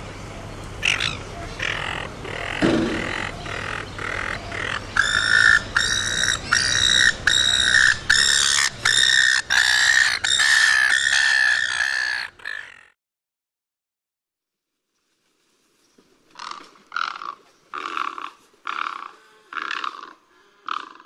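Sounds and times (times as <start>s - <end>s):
gull calling: 0.8s - 13.0s, 16.4s - 21.0s.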